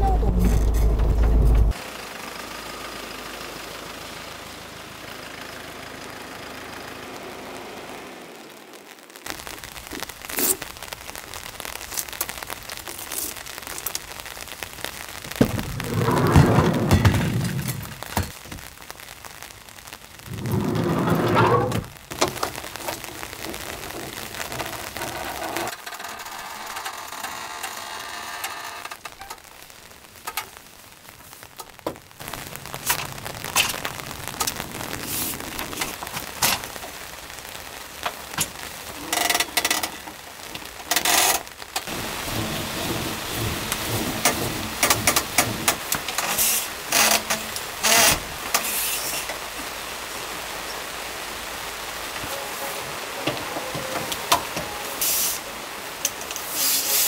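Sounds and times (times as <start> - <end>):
loud rumble: 0.0 - 1.8, 15.3 - 18.1, 20.2 - 22.0, 41.9 - 46.0
steady rain falling: 0.0 - 57.0
awning knocking and rattling: 42.2 - 46.1.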